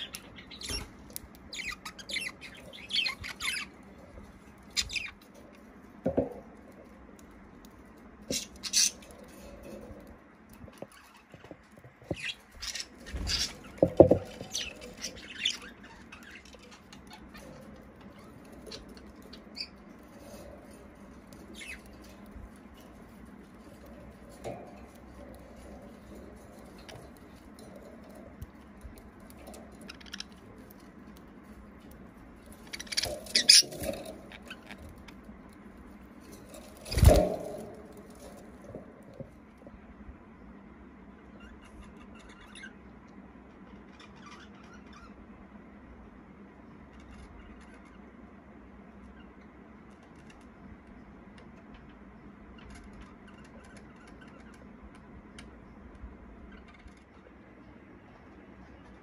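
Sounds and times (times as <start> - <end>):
wings fluttering: 0.0 - 39.7
birds scrabbling in cage: 0.0 - 39.8, 51.4 - 55.6
steady low hum: 0.0 - 59.0.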